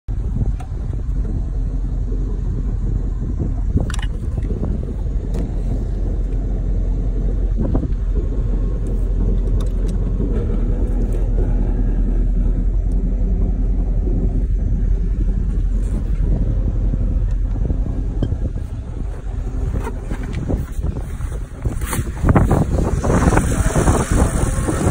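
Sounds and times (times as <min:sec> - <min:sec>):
boat engine low rumble: 0:00.0 - 0:24.9.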